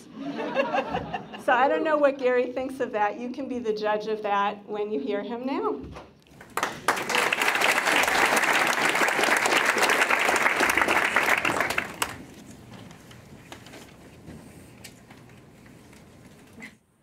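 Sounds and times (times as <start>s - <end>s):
audience applauding: 6.3s - 12.3s.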